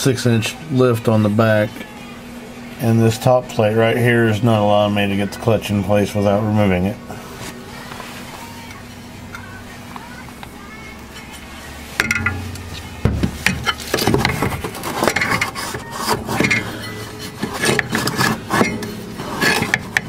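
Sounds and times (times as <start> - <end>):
metallic clanks and scrapes: 12.0 - 20.0.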